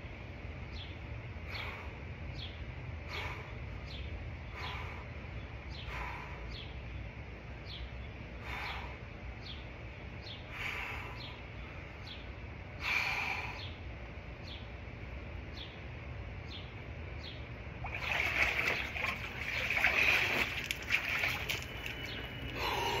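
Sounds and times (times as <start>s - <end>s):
water streaming off body: 17.8s - 22.6s
water sloshing and splashing: 17.8s - 23.0s.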